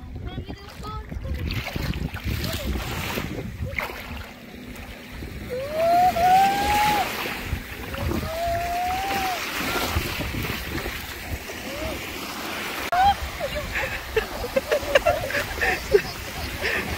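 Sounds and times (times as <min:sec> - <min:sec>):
waves washing on a beach: 0:01.2 - 0:16.9
person crying out: 0:05.5 - 0:07.2, 0:08.0 - 0:10.0, 0:12.9 - 0:13.5.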